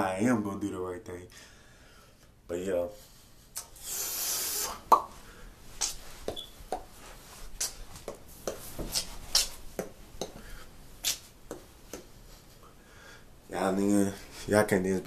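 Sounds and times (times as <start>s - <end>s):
dance steps knocking and tapping: 5.8s - 7.0s, 7.6s - 10.4s, 11.4s - 12.1s.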